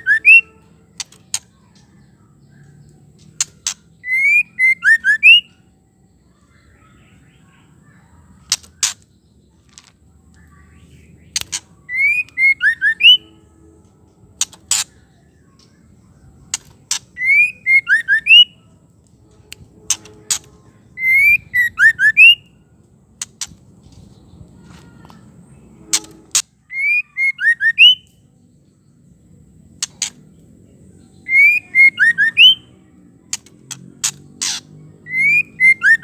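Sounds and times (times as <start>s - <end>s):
bird whistled calls: 0.0s - 0.5s, 3.4s - 5.6s, 11.8s - 13.3s, 17.2s - 18.6s, 20.0s - 22.5s, 26.6s - 28.1s, 31.2s - 32.7s, 34.4s - 36.0s
sharp bird clicks: 0.0s - 5.6s, 8.4s - 10.6s, 11.2s - 13.2s, 14.4s - 22.4s, 23.2s - 24.2s, 29.7s - 30.5s, 33.3s - 36.0s.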